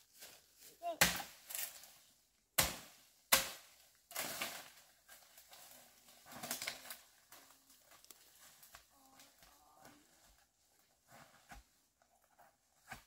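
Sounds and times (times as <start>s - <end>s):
rustling and crunching: 4.0s - 13.0s.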